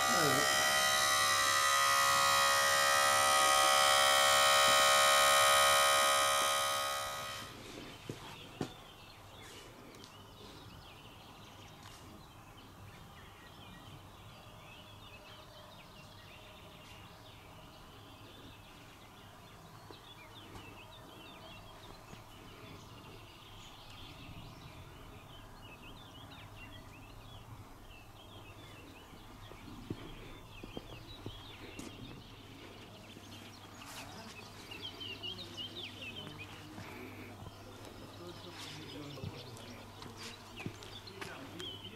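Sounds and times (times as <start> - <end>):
steady low hum: 0.0 - 9.4, 16.5 - 41.9
faint birdsong: 0.0 - 41.9.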